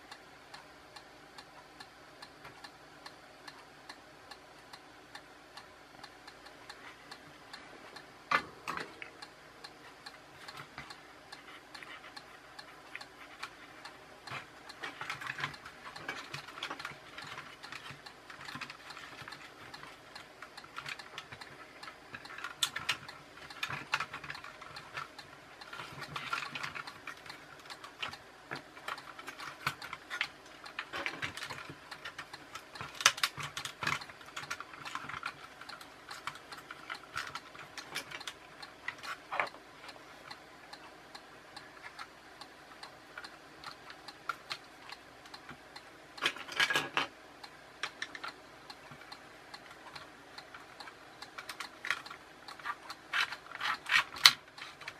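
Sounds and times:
plastic toy parts clicking: 14.3s - 40.0s, 46.2s - 47.1s, 47.8s - 54.9s.

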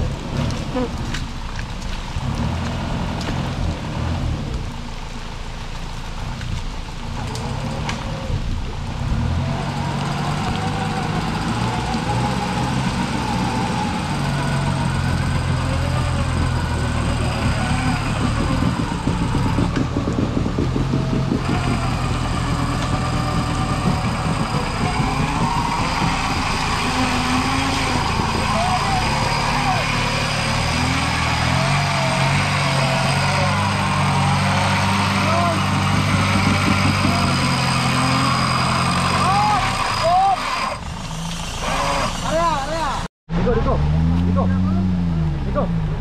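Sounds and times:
engine running: 0.0s - 46.0s
winch whine: 10.3s - 42.5s.

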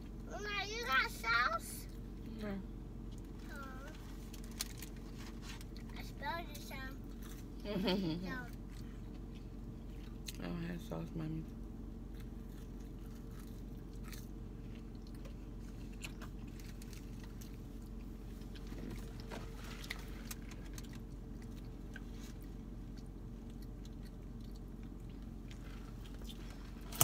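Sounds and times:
steady low hum: 0.0s - 27.0s
chewing and biting food: 7.0s - 7.6s, 8.4s - 10.4s, 12.0s - 27.0s.

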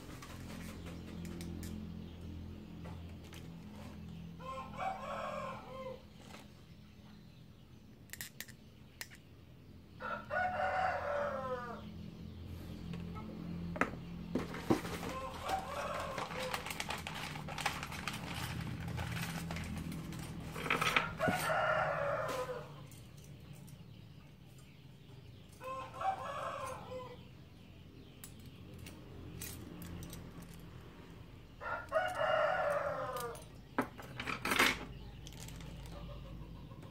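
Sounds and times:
rooster crowing: 4.4s - 6.0s, 10.0s - 11.8s, 20.5s - 22.9s, 25.6s - 27.2s, 31.6s - 33.5s.

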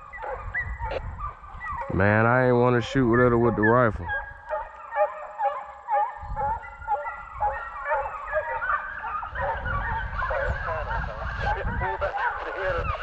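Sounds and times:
hounds baying: 0.0s - 13.0s.

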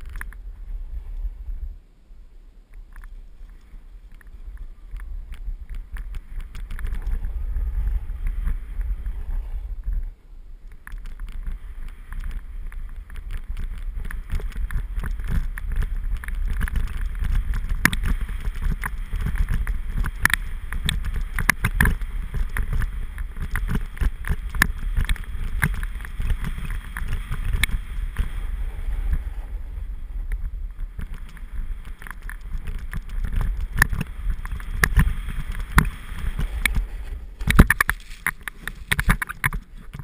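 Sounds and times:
wind buffeting microphone: 0.0s - 40.0s
snowboard scraping on snow: 6.9s - 9.8s, 13.9s - 31.9s, 32.5s - 39.8s
snowboard edge scraping snow: 11.6s - 31.9s, 32.6s - 40.0s.

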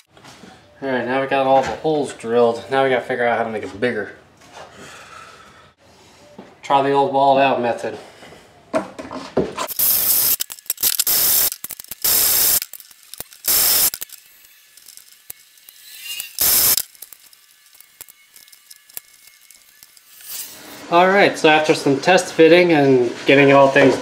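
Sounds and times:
cordless drill drilling metal: 9.7s - 20.6s.

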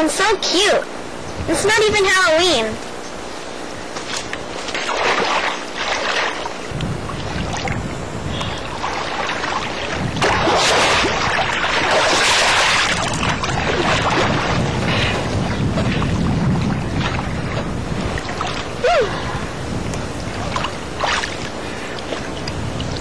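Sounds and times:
swimmer splashing in water: 4.1s - 7.8s, 8.4s - 19.0s.

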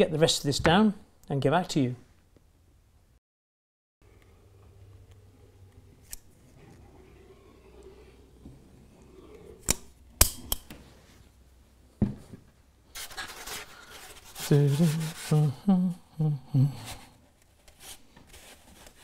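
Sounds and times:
knock of tool put down: 12.0s - 12.4s.

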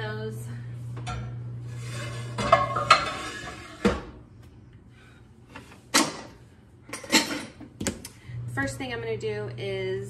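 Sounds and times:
metal pans clanking: 1.1s - 4.1s, 6.9s - 7.6s.

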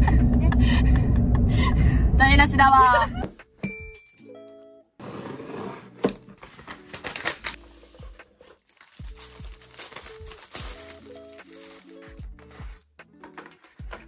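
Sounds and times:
soft background music: 2.3s - 14.0s
plastic packaging crinkling: 6.4s - 12.2s.

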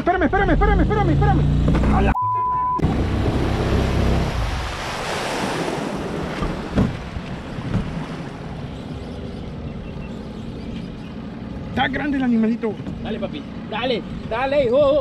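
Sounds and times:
rushing water: 2.8s - 10.3s
outboard motor running: 2.8s - 15.0s.

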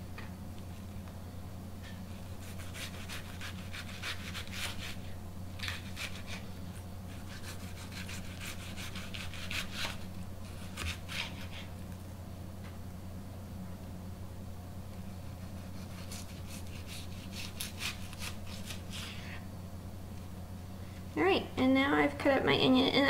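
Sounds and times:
low steady hum: 0.0s - 23.0s
knife cutting onion on board: 1.9s - 5.0s, 7.1s - 11.6s, 15.4s - 19.0s.

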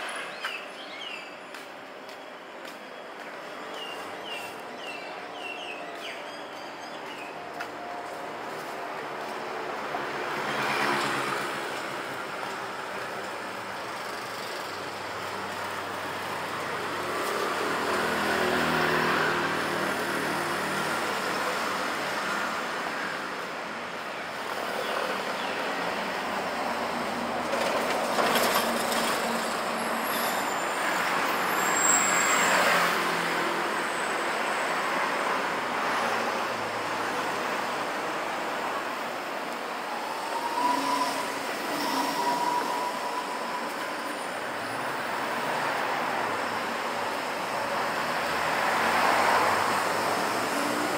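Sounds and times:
steady town hum: 0.0s - 31.7s
scooters and cars passing: 2.6s - 50.9s.

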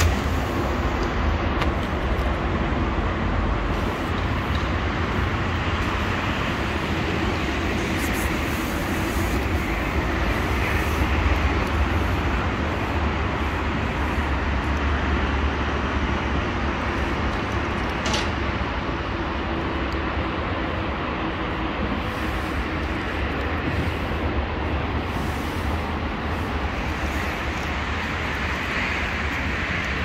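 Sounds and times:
low outdoor rumble: 0.0s - 30.0s
hiss: 5.8s - 14.8s, 21.8s - 30.0s.

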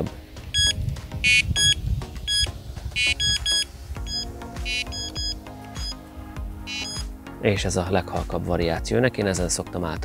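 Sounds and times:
bite alarm short electronic beeps: 1.3s - 6.0s, 6.7s - 7.0s.

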